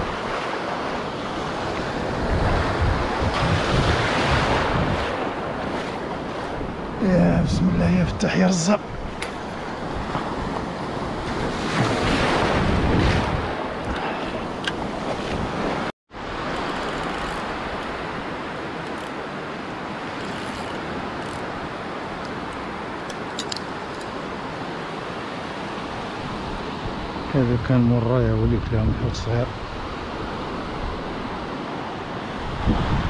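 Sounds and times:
wind buffeting microphone: 0.0 - 18.3, 32.2 - 33.0
ocean surf breaking on beach: 0.0 - 33.0.

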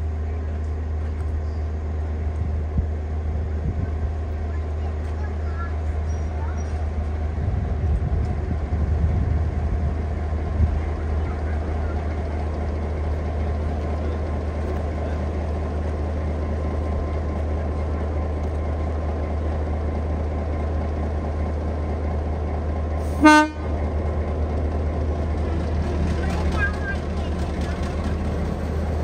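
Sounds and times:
locomotive engine droning: 0.0 - 29.0
locomotive horn toot: 23.2 - 23.7.

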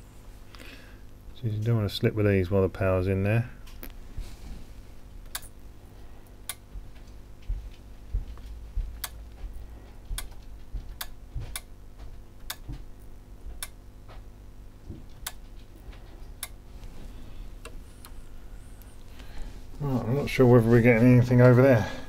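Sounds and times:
home theatre unit clicking: 10.2 - 11.8.

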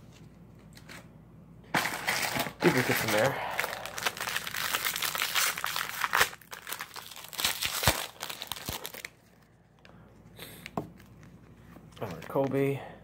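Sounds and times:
wrapper tearing and crinkling: 1.7 - 9.3.

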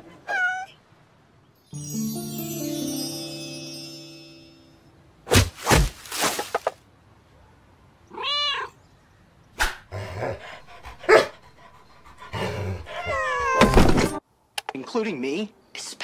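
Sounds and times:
cat meowing: 0.2 - 0.8, 8.1 - 8.8, 13.0 - 13.7.

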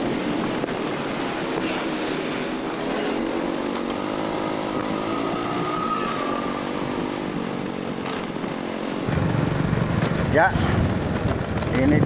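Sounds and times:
scooter engine running: 2.5 - 12.0.

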